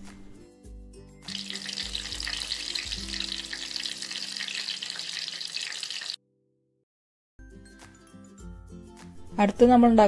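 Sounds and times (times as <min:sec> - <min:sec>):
deep-frying sizzle in oil: 0:01.3 - 0:06.2.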